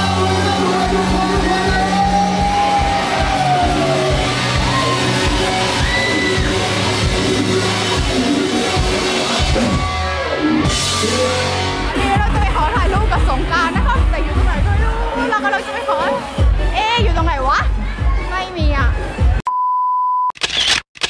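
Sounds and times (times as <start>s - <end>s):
man singing: 0.0s - 4.2s
rock band playing: 0.0s - 19.4s.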